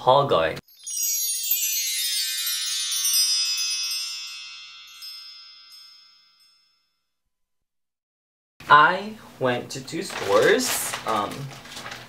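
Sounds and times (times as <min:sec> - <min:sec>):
bell-like chime ringing: 0:00.6 - 0:07.2.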